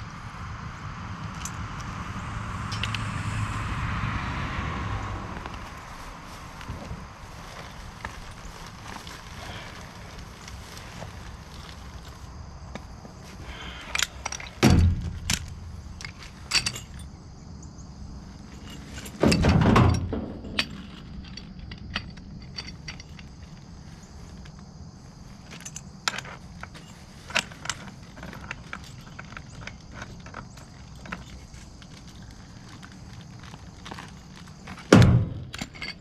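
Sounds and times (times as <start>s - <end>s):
steady low hum: 0.0s - 36.0s
tools clinking and clicking: 2.7s - 3.0s, 13.8s - 17.1s, 18.4s - 23.6s, 25.4s - 36.0s
loud thumps: 14.5s - 15.8s, 34.8s - 35.8s.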